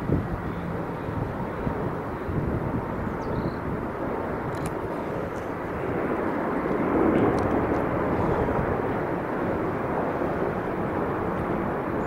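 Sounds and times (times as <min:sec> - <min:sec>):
jet engine rumble: 0:00.0 - 0:12.0.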